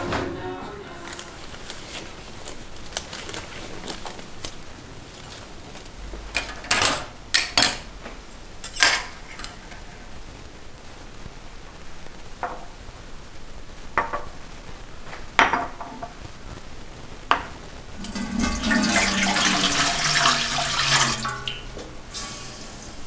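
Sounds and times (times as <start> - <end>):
water running from a tap: 18.0 - 23.0.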